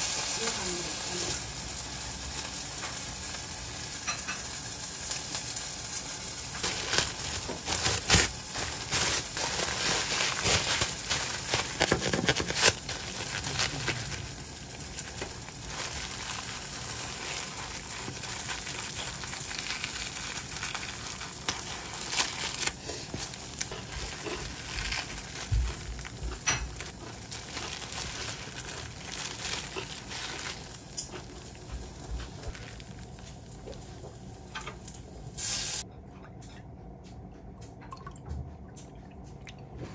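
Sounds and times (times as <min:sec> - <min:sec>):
cling wrap crinkling: 0:04.6 - 0:35.8.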